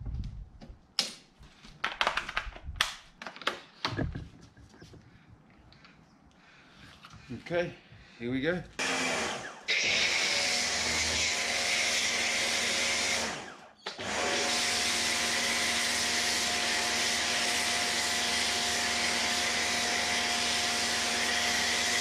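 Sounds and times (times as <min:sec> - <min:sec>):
pressure washer motor and pump hum: 0:08.8 - 0:22.0.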